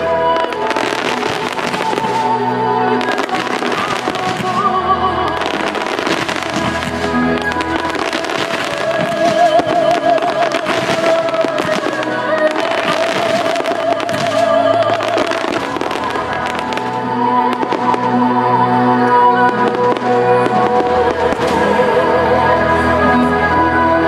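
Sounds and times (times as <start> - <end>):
fireworks bursting and crackling: 0.0 - 22.2
music with held melody: 0.0 - 24.0.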